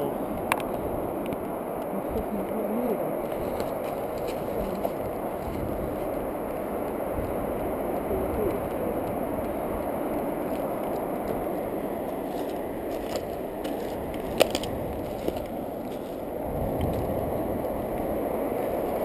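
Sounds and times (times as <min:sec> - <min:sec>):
rustling against camera housing: 0:09.4 - 0:17.1.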